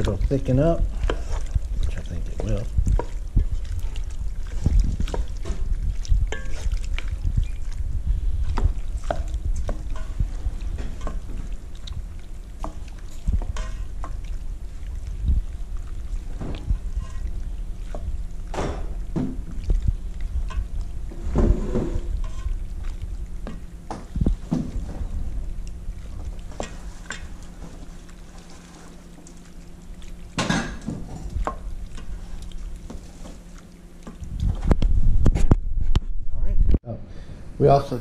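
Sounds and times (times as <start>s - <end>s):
sticky pasta mixing: 0.0s - 35.2s
spoon knocking and scraping bowl: 6.3s - 6.8s.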